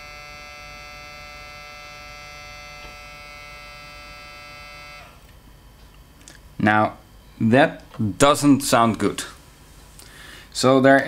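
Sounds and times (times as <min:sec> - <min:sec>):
floppy drive motor whining: 0:00.0 - 0:05.4.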